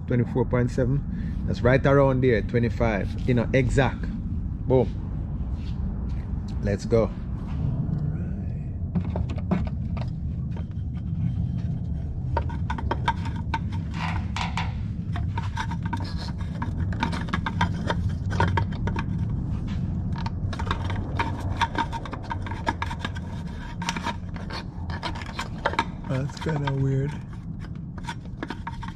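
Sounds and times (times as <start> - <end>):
low hum: 0.0 - 28.9
cap being screwed by hand: 8.9 - 28.9.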